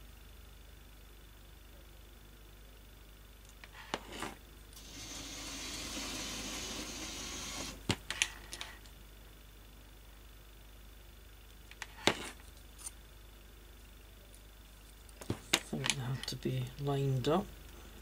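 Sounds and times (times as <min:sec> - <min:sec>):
small electric motor whirring: 0:04.8 - 0:07.8.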